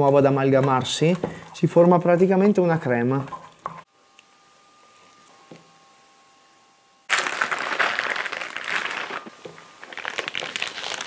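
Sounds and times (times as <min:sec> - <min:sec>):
plastic piping bag crinkling: 0:07.1 - 0:11.0.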